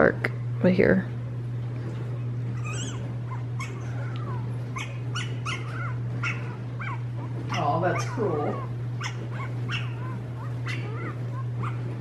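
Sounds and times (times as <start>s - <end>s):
low hum: 0.0s - 12.0s
puppy whimpering through phone speaker: 2.2s - 11.8s.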